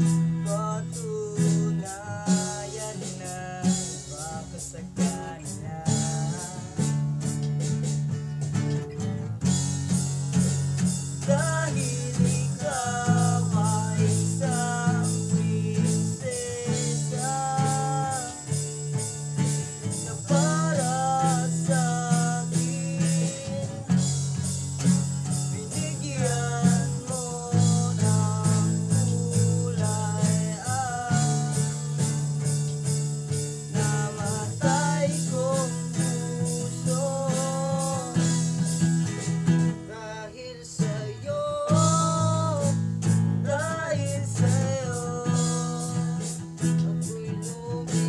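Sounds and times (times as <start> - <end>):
man singing: 0.0 - 7.8, 10.3 - 48.0
acoustic guitars strummed: 0.0 - 48.0
jingling percussion: 0.0 - 48.0.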